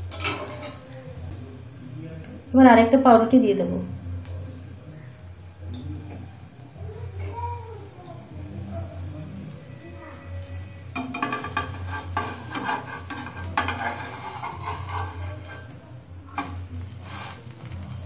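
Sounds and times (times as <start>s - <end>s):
spatula scraping and tapping pan: 0.0s - 0.9s, 10.9s - 17.9s
sandwich sizzling in oil: 0.0s - 18.0s.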